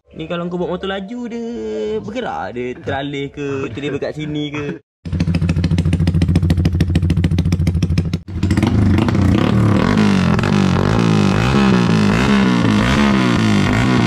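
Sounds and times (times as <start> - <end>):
motorcycle engine revving: 5.0 - 14.0.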